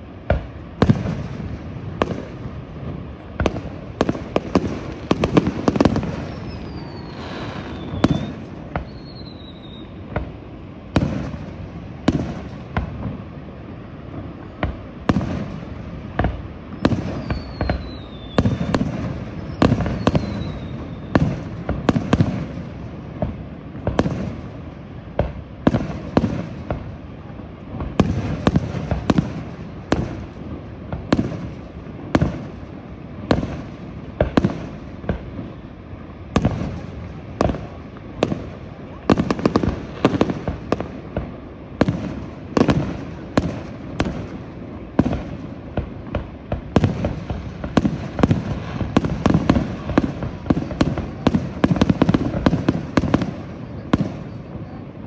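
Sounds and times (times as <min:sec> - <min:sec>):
fireworks bursts and crackles: 0:00.0 - 0:55.0
falling firework whistles: 0:03.4 - 0:24.5.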